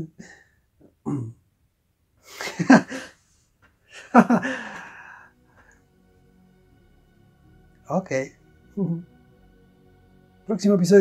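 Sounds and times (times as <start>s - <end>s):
man laughing: 2.3s - 3.1s, 3.9s - 5.2s.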